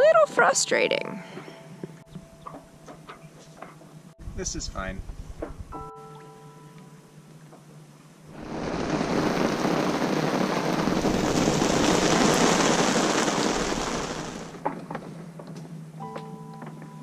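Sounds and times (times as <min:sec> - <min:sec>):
heavy rain pouring: 0:08.3 - 0:14.6.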